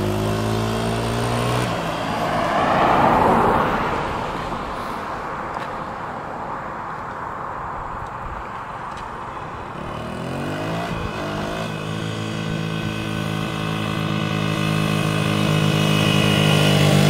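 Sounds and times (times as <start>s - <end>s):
dirt bike engine revving: 0.0s - 3.5s, 9.8s - 17.0s.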